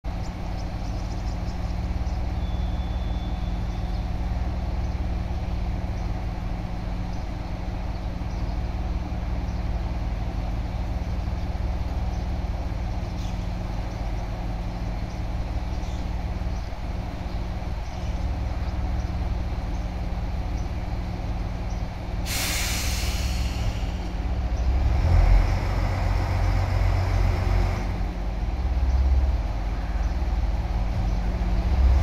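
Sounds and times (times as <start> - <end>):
diesel engine idling: 0.1 - 32.0.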